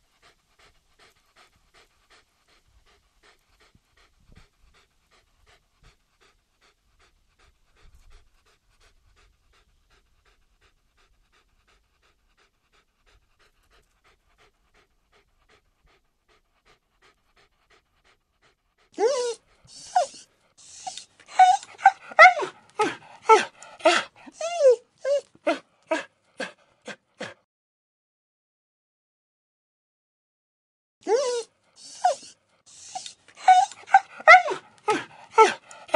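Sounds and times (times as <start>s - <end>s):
dog panting: 0.0s - 27.4s, 31.1s - 35.9s
puppy whining and yelping: 19.0s - 26.5s, 31.1s - 35.9s.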